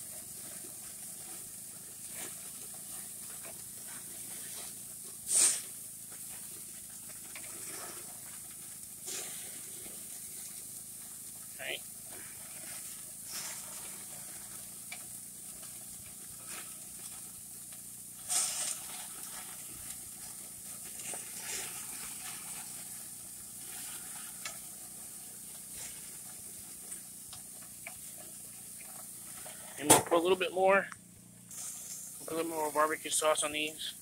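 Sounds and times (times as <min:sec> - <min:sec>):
patties sizzling on a grill: 0:00.0 - 0:34.0
metal spatula scraping on grate: 0:18.2 - 0:20.0.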